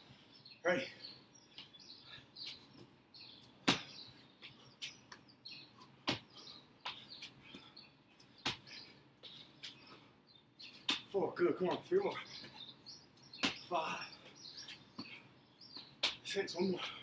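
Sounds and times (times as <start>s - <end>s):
sneakers thudding on bricks: 3.6s - 4.0s
hands slapping on bricks: 16.0s - 16.2s.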